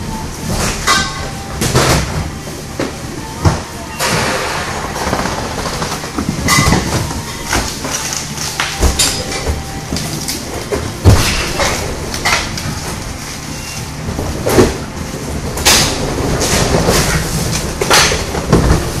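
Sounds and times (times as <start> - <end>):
cardboard boxes rattling on roller conveyor: 0.0 - 19.0
cartons knocking and thumping: 5.8 - 11.8, 15.5 - 19.0.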